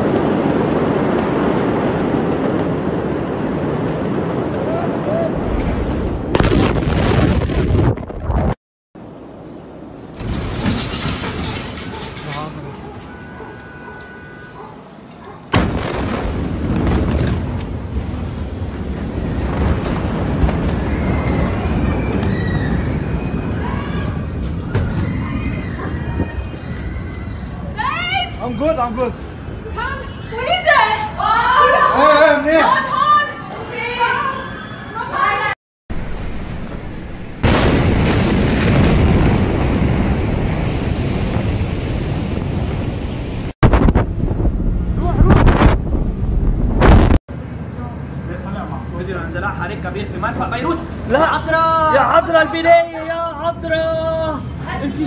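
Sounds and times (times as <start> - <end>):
explosion boom and rumble: 0.0 - 8.6, 15.5 - 27.1, 35.9 - 47.2
wind buffeting microphone: 15.8 - 29.8, 36.0 - 47.2.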